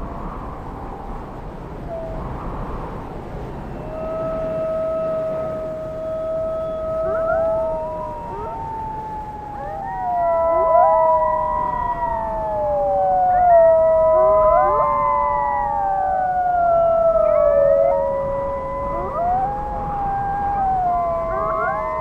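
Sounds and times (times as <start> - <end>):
wolves howling in chorus: 3.7 - 22.0.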